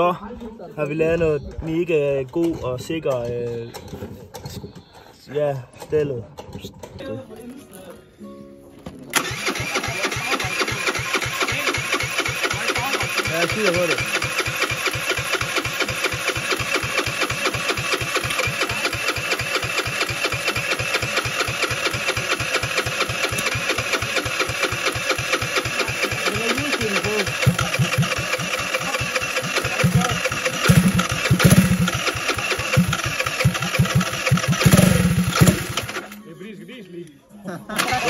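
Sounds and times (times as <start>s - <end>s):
small engine running: 9.2s - 36.2s, 37.8s - 38.0s.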